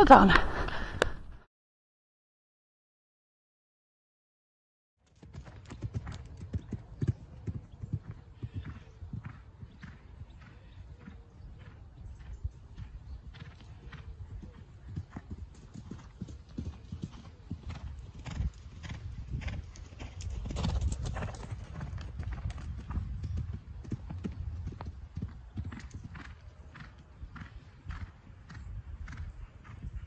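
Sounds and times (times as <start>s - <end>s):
horse hoofbeats cantering: 5.1s - 30.0s.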